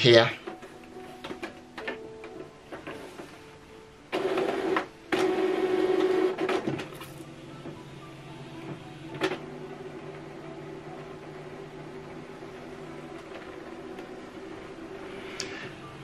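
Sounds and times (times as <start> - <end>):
printer humming: 0.0 - 16.0
printer mechanism running: 4.1 - 16.0.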